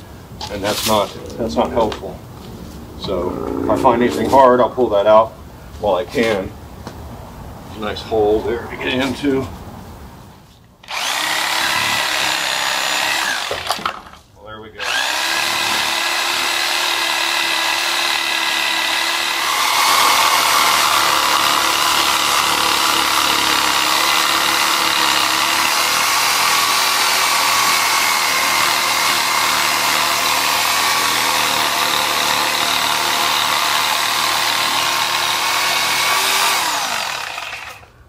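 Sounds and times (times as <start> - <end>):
reciprocating saw cutting roots: 10.8 - 14.1, 14.8 - 37.9.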